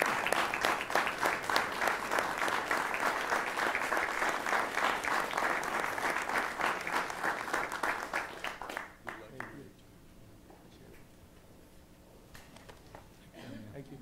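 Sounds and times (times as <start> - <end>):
audience applauding: 0.0 - 9.6.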